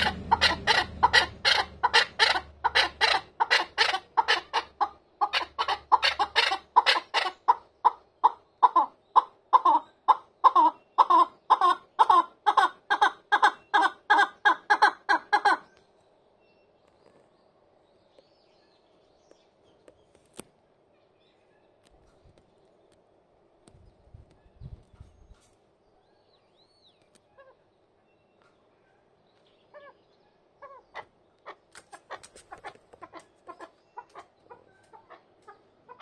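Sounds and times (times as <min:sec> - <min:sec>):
partridge clucking call: 0:00.0 - 0:15.7.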